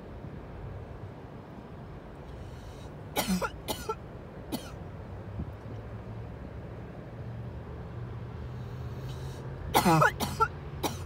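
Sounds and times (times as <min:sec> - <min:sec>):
person coughing: 0:03.2 - 0:04.7, 0:09.8 - 0:11.0.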